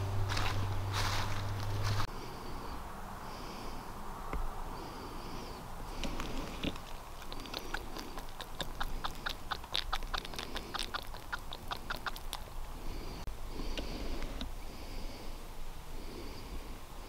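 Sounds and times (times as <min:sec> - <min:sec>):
drops ticking on dry leaves: 0:00.0 - 0:02.1, 0:06.0 - 0:12.7.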